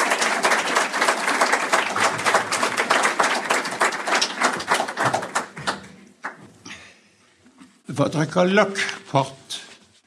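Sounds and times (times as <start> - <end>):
audience applauding: 0.0 - 6.4.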